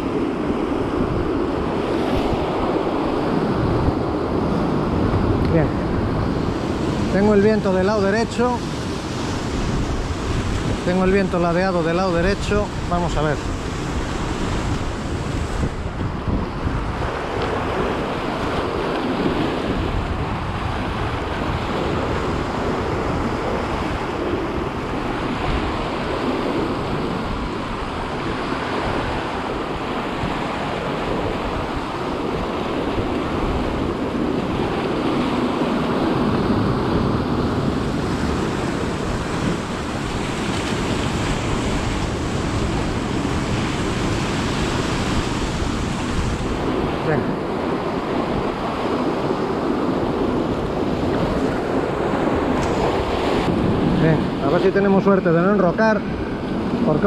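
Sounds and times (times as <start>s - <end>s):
surf washing against rocks: 0.0s - 57.0s
wind buffeting microphone: 0.0s - 57.0s.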